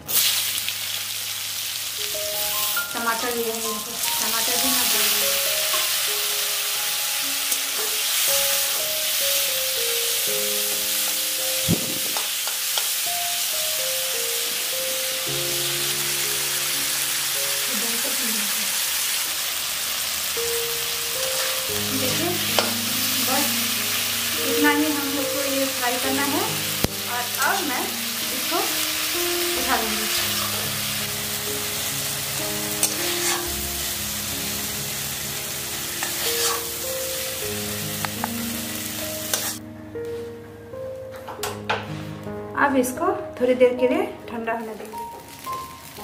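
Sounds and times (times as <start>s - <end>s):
vegetables sizzling in oil: 0.0s - 39.6s, 43.8s - 46.0s
soft background music: 0.0s - 46.0s
metal spatula stirring: 21.1s - 21.7s, 31.7s - 33.7s, 35.8s - 36.9s, 39.2s - 39.6s
spatula knocking on wok: 22.5s - 22.9s.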